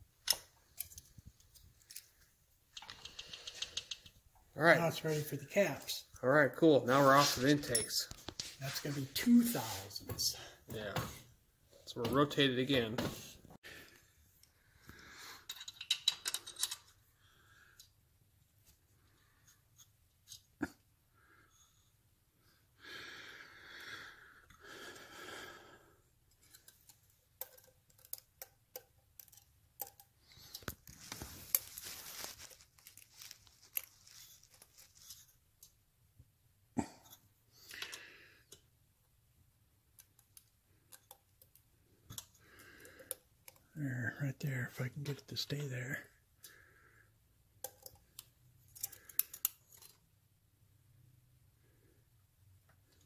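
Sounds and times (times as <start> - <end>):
rustling: 30.4 - 35.4.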